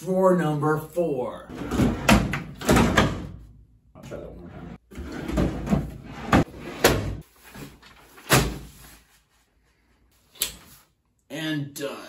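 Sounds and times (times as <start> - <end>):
drawers sliding shut: 1.5 - 3.4, 4.4 - 7.2.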